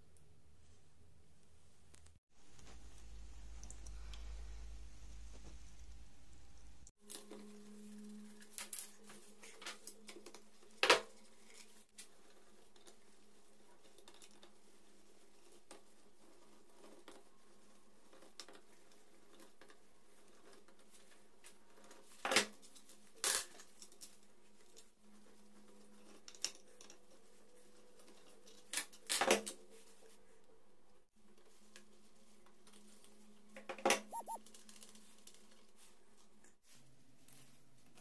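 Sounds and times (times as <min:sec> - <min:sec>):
faint room hum: 0:00.0 - 0:33.7.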